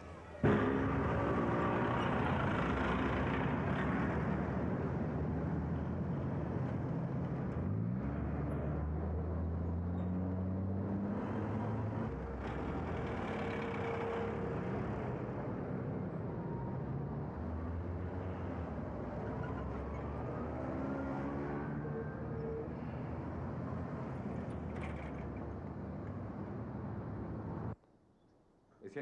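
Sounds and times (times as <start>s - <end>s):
bus passing: 0.0s - 27.8s
car traffic passing: 0.0s - 27.8s
engine rising in pitch: 7.9s - 23.0s.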